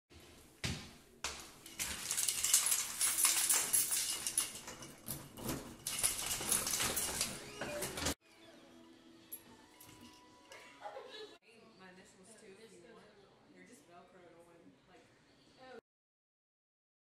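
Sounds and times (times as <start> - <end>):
keys jingling: 1.6 - 7.6.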